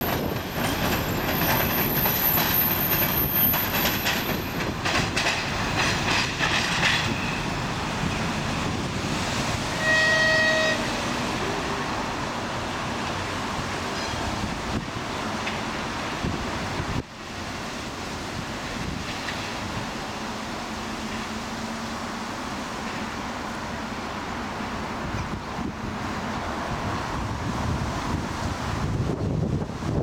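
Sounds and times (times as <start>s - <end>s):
wheels clicking over rail joints: 0.0s - 8.4s
diesel locomotive running: 0.0s - 30.0s
train horn: 9.7s - 12.0s.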